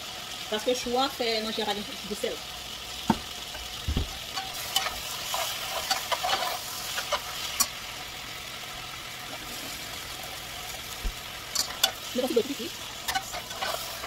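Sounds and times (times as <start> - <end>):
vegetables sizzling in a pot: 0.0 - 14.0
spoon scraping metal pot: 4.3 - 7.7, 13.0 - 14.0.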